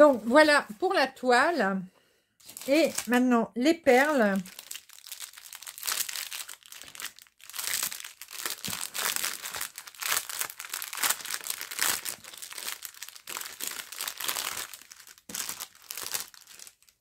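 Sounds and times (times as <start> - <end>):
plastic bag crinkling: 2.4 - 3.2, 3.9 - 17.0
small packets shifting: 2.4 - 3.2, 4.3 - 17.0.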